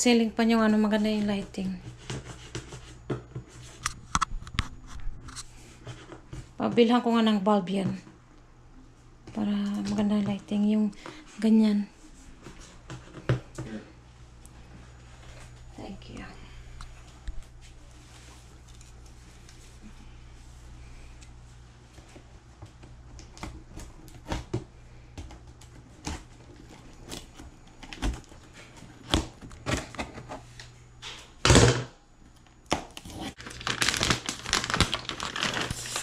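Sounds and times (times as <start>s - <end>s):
plastic bag crinkling: 33.4s - 36.0s.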